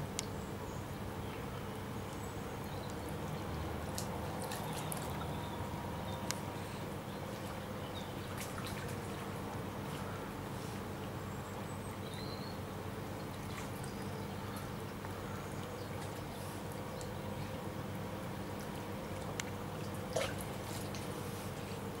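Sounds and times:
river water trickling and lapping: 0:00.0 - 0:22.0
small splashes: 0:01.4 - 0:11.2, 0:13.1 - 0:22.0
faint sharp clicks: 0:06.2 - 0:06.5.

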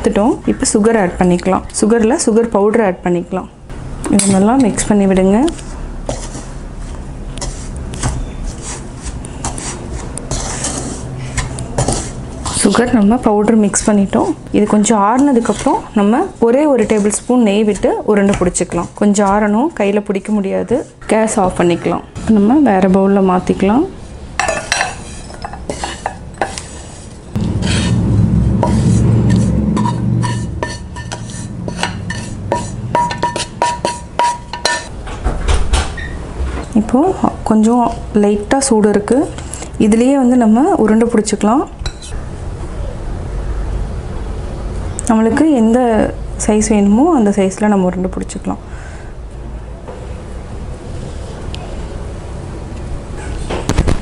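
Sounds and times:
wooden spatula scraping a pan: 0:05.5 - 0:14.4, 0:15.0 - 0:21.8, 0:24.6 - 0:34.9
low rumble: 0:27.3 - 0:32.9.

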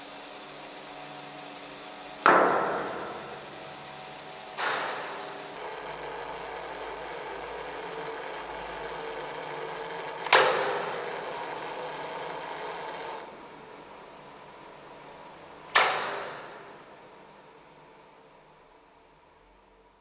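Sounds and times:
striker knocking radiator: 0:00.5 - 0:06.1.

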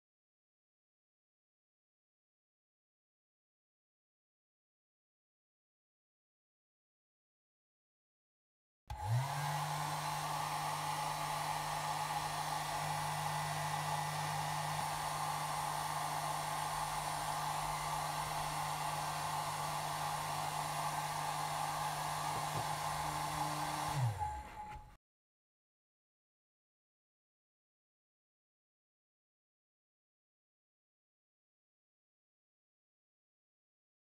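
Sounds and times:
hair dryer blowing air: 0:08.9 - 0:25.0.

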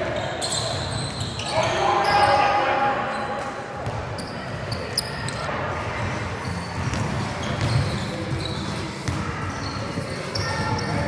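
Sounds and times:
players' voices: 0:00.0 - 0:11.0
sneaker squeaks: 0:00.0 - 0:11.0
basketball bouncing on hardwood: 0:06.8 - 0:07.8.

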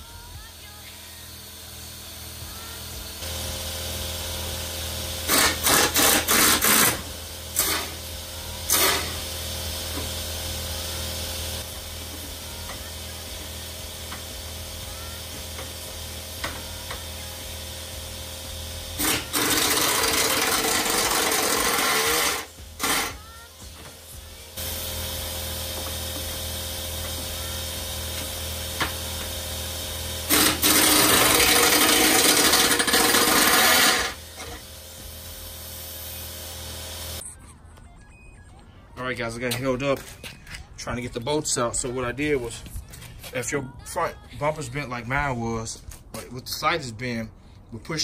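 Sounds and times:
air wrench bursts: 0:00.2 - 0:37.2.

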